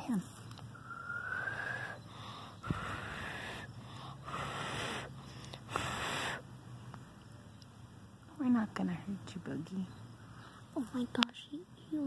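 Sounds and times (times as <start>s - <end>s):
person blowing puffs of breath: 0.8s - 6.5s.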